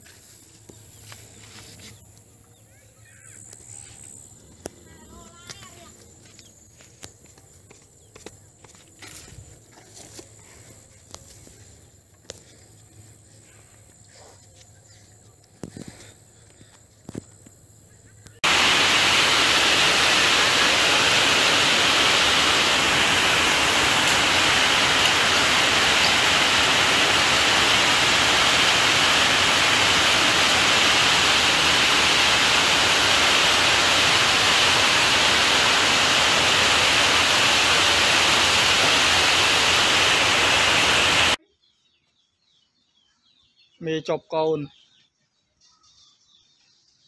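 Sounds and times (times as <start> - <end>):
loud static hiss: 18.4 - 41.4.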